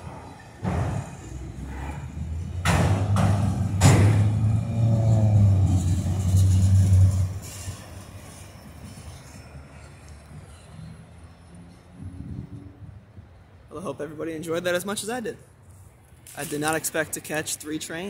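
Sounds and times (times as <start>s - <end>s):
metallic clanks of wheels: 0.0s - 9.4s
train rumbling past: 0.0s - 10.6s.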